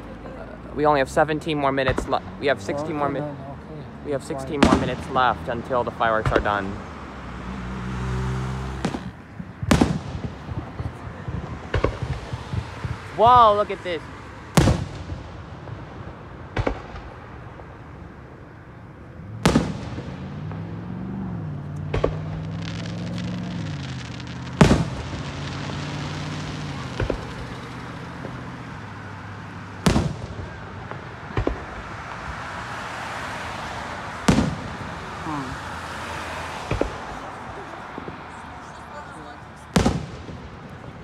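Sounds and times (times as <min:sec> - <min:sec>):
fireworks booming: 0:01.0 - 0:41.0.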